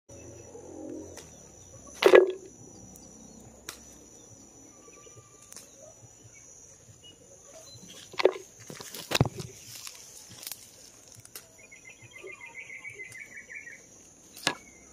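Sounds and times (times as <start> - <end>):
high-pitched whine: 0.1 - 7.1
stems snapping and leaves rustling: 1.1 - 2.3, 2.9 - 4.1, 5.4 - 5.8, 7.8 - 12.4.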